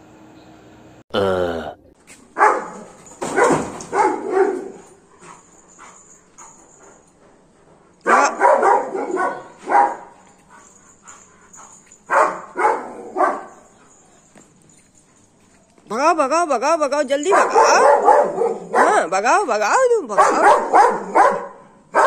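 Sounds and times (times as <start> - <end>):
dog barking aggressively: 2.3 - 5.4, 8.0 - 10.2, 12.1 - 13.7, 17.2 - 19.1, 20.2 - 22.0.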